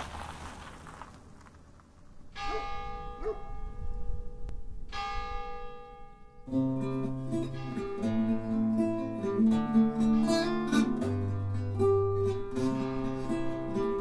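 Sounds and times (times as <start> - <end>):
church bell ringing: 2.3 - 14.0
acoustic guitar music: 4.2 - 14.0.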